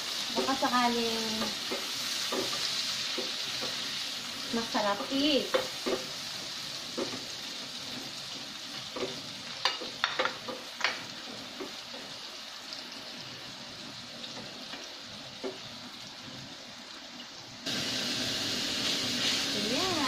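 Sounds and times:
food sizzling in frying pan: 0:00.0 - 0:20.0
spatula knocking and scraping pan: 0:01.3 - 0:03.9, 0:04.8 - 0:06.2, 0:06.9 - 0:07.4.

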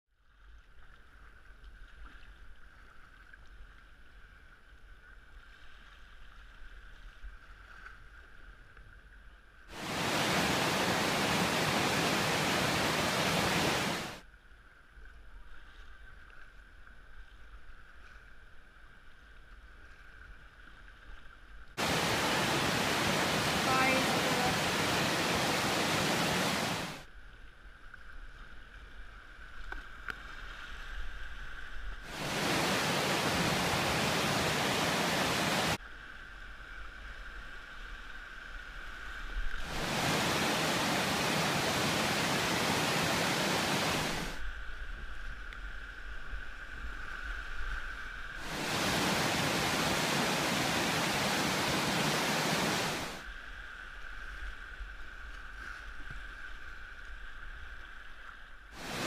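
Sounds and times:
whitewater rushing: 0:09.7 - 0:14.2, 0:21.8 - 0:27.0, 0:32.1 - 0:35.8, 0:39.6 - 0:44.4, 0:48.4 - 0:53.2, 0:58.8 - 0:59.0.

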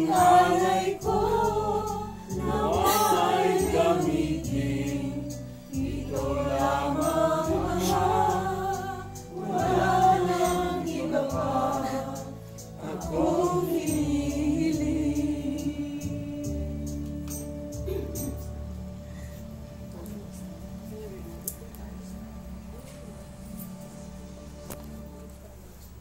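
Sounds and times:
group singing a hymn: 0:00.0 - 0:18.2
steady low accompaniment: 0:00.0 - 0:26.0.

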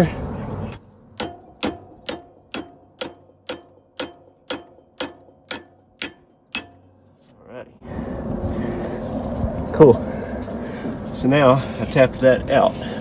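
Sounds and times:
hammer striking metal: 0:01.2 - 0:07.1.

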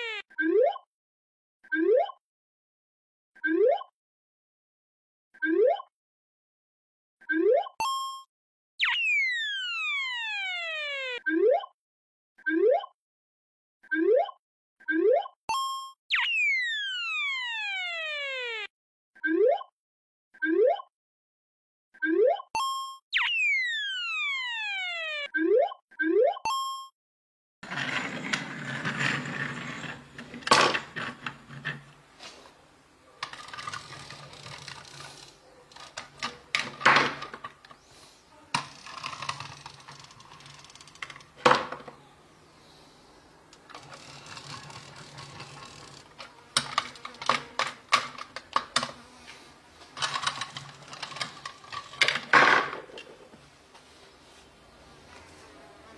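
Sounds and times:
plastic toys clicking and knocking: 0:27.7 - 0:32.0, 0:33.2 - 0:37.8, 0:38.5 - 0:42.0, 0:43.5 - 0:49.1, 0:49.8 - 0:53.3.

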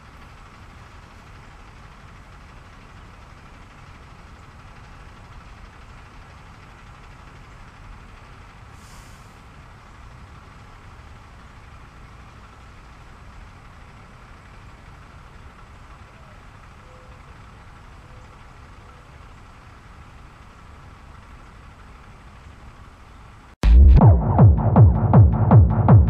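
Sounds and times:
low outdoor rumble: 0:00.0 - 0:26.0
brief hiss: 0:08.8 - 0:09.4.

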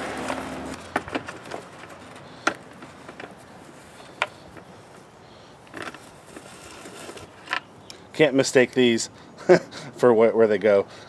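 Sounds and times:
tool scraping: 0:05.7 - 0:07.7.

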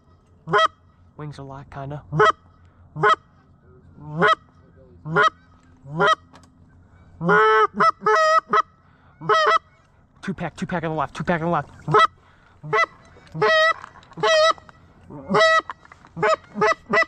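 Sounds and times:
goose honking: 0:00.0 - 0:01.0, 0:02.1 - 0:03.4, 0:04.0 - 0:06.3, 0:06.9 - 0:09.9, 0:11.8 - 0:17.0.

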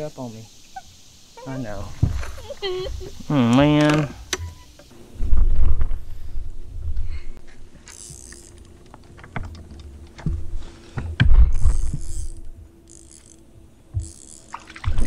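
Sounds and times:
faint steady hum: 0:00.0 - 0:15.0
thumps and rumbles in boat: 0:01.9 - 0:03.0, 0:08.9 - 0:12.7
fishing reel clicking: 0:07.8 - 0:08.8, 0:11.6 - 0:13.4, 0:14.0 - 0:14.7.

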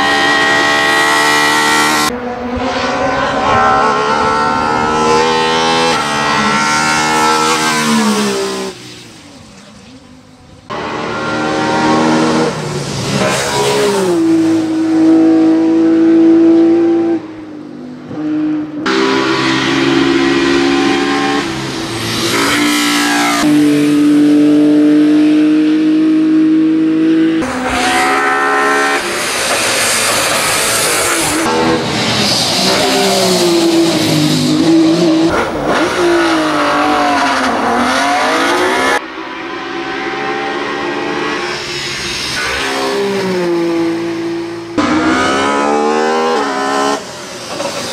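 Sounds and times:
race car engine revving: 0:00.0 - 0:08.8, 0:10.7 - 0:17.2, 0:18.1 - 0:47.9.

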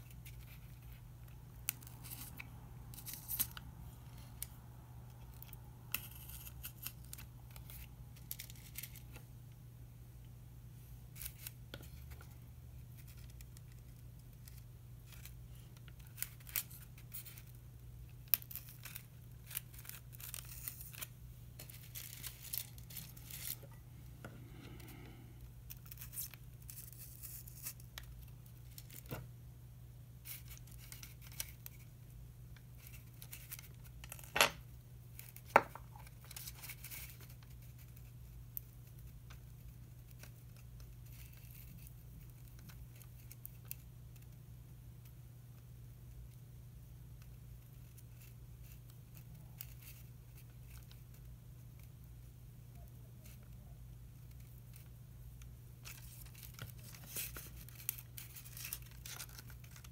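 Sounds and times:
low steady hum: 0:00.0 - 0:59.9
paper strips rustling on foam: 0:18.2 - 0:23.8, 0:55.8 - 0:59.9.

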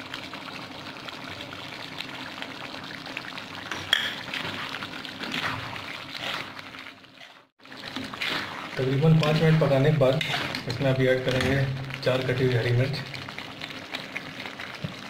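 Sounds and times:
gravy bubbling and sizzling: 0:00.0 - 0:15.0
ladle stirring: 0:03.2 - 0:15.0.

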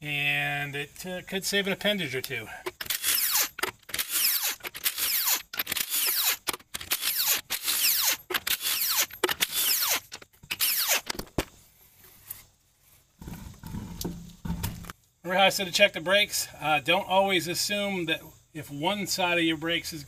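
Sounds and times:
impact wrench bursts: 0:02.6 - 0:11.3.

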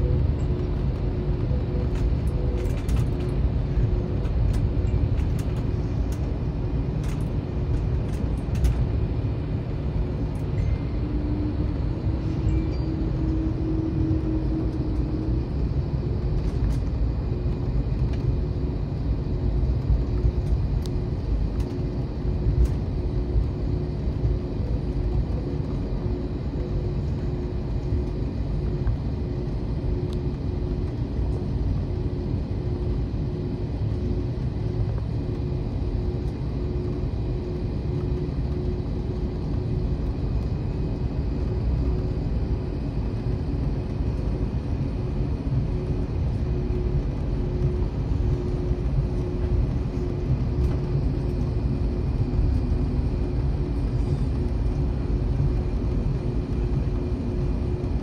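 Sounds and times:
aircraft engines low rumble: 0:00.0 - 0:58.0
steady cabin hum: 0:00.0 - 0:58.0.

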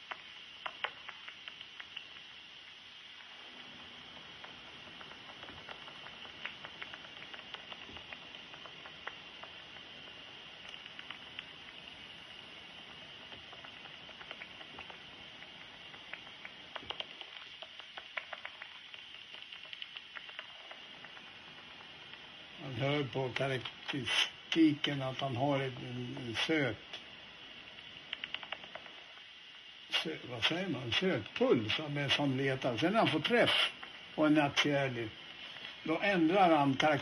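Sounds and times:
bat detector hiss: 0:00.0 - 0:37.0
bat detector clicks: 0:04.4 - 0:22.2, 0:27.9 - 0:29.0.

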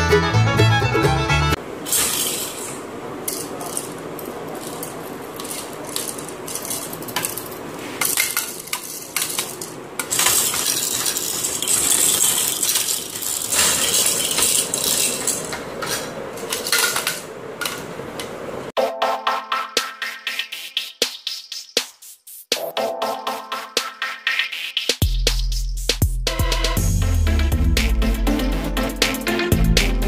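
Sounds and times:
plastic rattle toys clacking: 0:01.9 - 0:17.9.

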